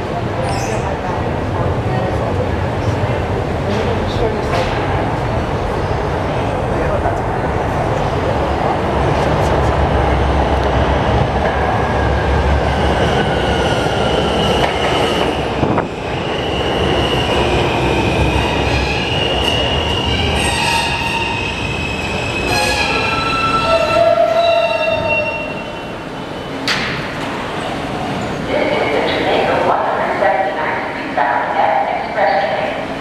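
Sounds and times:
train wheels rumbling on rail: 0.0 - 30.0
train brakes squealing: 18.6 - 25.9.

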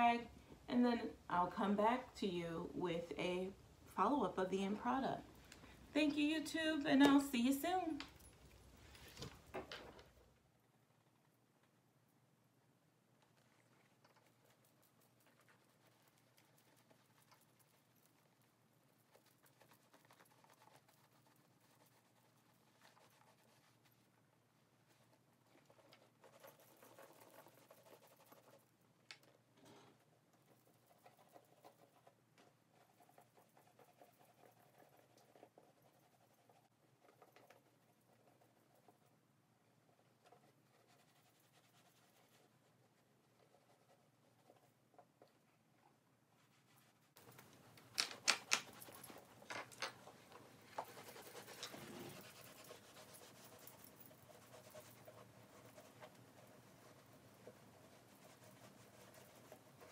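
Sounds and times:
sharp clicks and knocks: 47.3 - 50.0.

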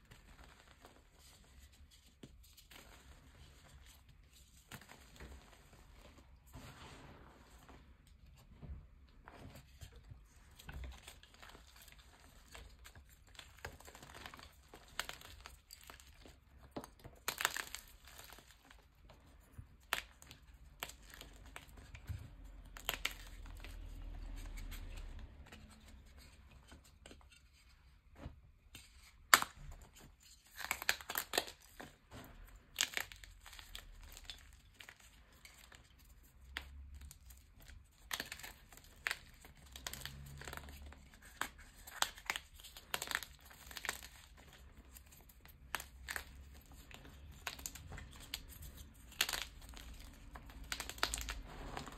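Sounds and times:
chalk crunching and crackling: 9.2 - 51.9.

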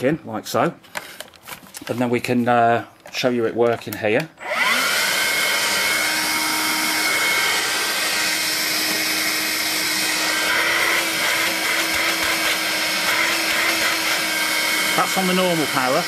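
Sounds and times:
vacuum cleaner running: 4.4 - 16.0.

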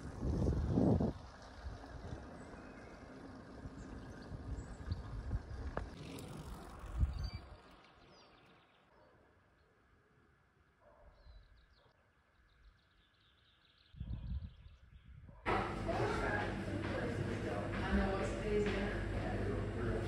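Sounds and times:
wind on microphone: 0.0 - 2.6, 14.0 - 15.4
road rumble while cycling: 0.0 - 8.9, 15.4 - 20.0.

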